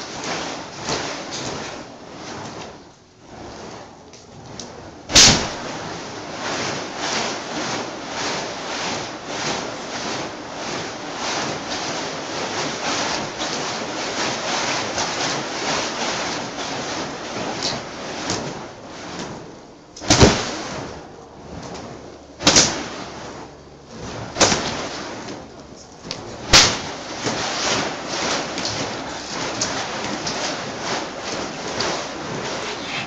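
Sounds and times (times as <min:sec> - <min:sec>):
rushing flame: 0:00.0 - 0:33.0
whip cracks: 0:05.1 - 0:05.8, 0:20.0 - 0:20.6, 0:22.4 - 0:23.0, 0:24.4 - 0:25.0, 0:26.5 - 0:30.6.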